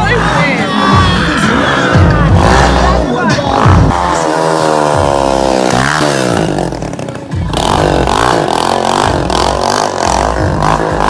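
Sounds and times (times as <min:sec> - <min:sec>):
motorcycle engine revving: 0:00.0 - 0:11.0
music with deep bass: 0:00.0 - 0:11.0.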